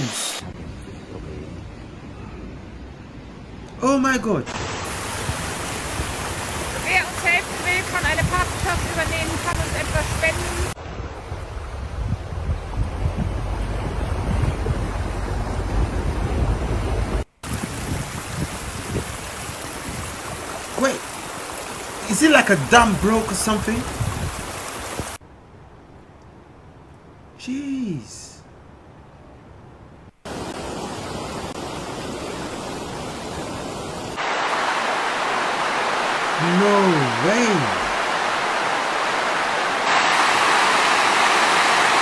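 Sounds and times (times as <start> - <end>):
wind buffeting microphone: 0.4 - 2.9, 4.9 - 21.9, 23.6 - 25.2
rushing floodwater: 3.8 - 11.4, 17.4 - 25.2, 30.3 - 42.0.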